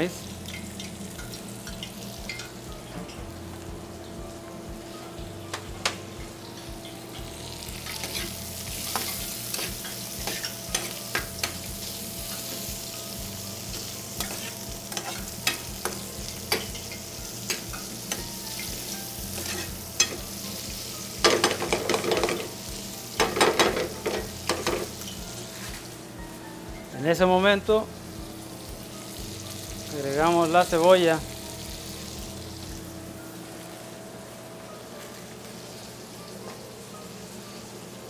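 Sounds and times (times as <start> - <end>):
sausage sizzling in hot oil: 0.0 - 38.0
metal clatter of spoon and pan: 8.9 - 11.6, 21.2 - 22.5, 23.2 - 24.9.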